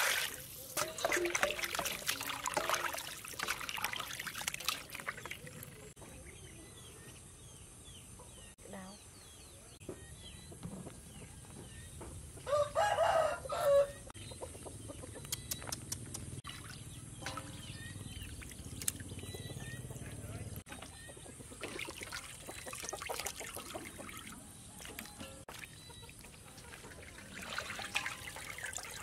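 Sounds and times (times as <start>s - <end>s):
water splashing: 0.0s - 6.0s, 16.4s - 29.0s
small birds chirping: 3.8s - 12.6s, 13.5s - 29.0s
rooster crowing: 12.5s - 14.1s.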